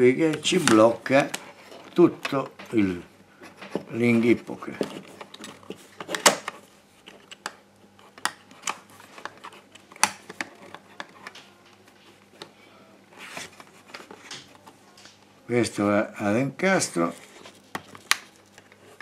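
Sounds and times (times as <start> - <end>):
hands rubbing plastic: 0.2 - 15.2, 16.6 - 19.0
plastic clicks and knocks: 3.5 - 12.5.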